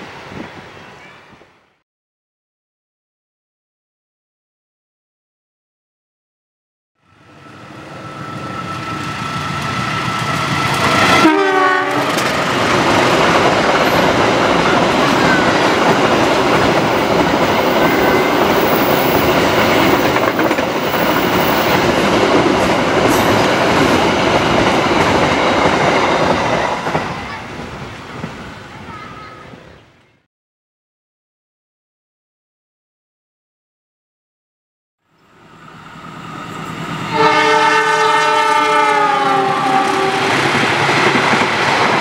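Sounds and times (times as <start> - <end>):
diesel locomotive passing: 7.0 - 29.3, 35.2 - 42.0
train horn blast: 11.0 - 12.4, 37.1 - 40.4.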